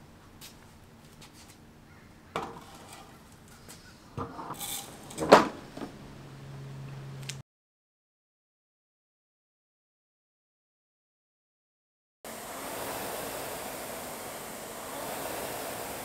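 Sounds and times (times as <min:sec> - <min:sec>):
rowing machine knocks and clatter: 0:04.2 - 0:06.0.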